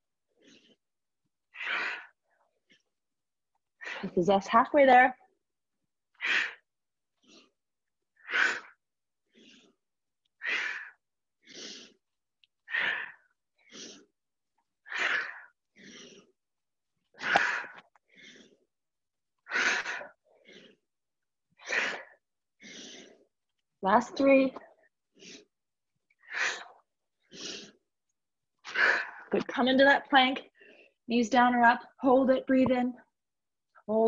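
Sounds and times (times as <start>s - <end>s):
woman breathing forcefully: 0.3s - 0.9s, 1.5s - 2.9s, 6.1s - 16.4s, 17.0s - 18.7s, 19.4s - 20.9s, 21.6s - 23.4s, 24.8s - 27.9s, 28.6s - 29.3s.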